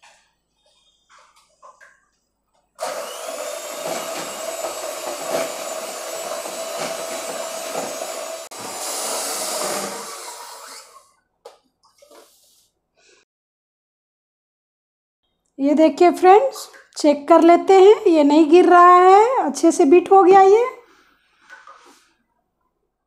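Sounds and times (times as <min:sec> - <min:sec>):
electric hand mixer whipping cream: 0:02.8 - 0:11.1.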